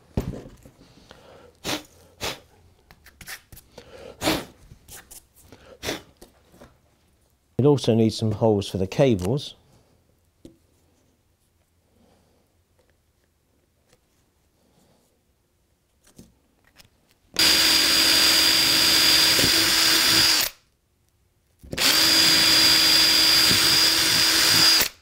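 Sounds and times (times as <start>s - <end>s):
cordless drill boring: 17.4s - 20.6s, 21.7s - 25.0s.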